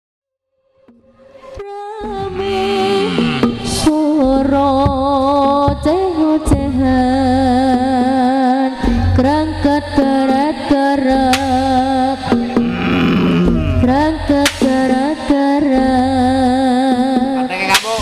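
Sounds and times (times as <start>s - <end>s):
drum strokes: 2.0s - 7.8s, 8.8s - 16.0s
sharp crack: 11.3s - 11.8s, 14.4s - 14.9s, 17.7s - 18.0s.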